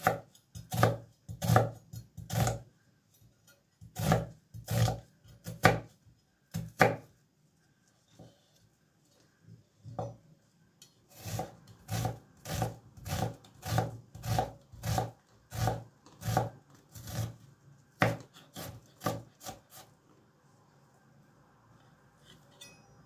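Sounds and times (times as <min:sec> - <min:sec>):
knife chopping onion on wooden board: 0:00.0 - 0:02.6, 0:03.8 - 0:05.9, 0:06.5 - 0:07.1, 0:11.1 - 0:17.4, 0:18.0 - 0:19.9.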